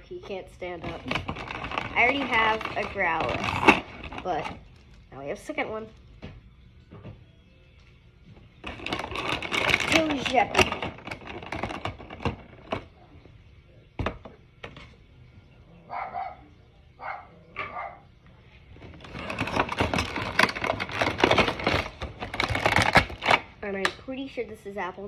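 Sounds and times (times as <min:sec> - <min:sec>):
plastic packaging crinkling: 0:00.8 - 0:05.2, 0:08.6 - 0:12.9, 0:18.8 - 0:23.5.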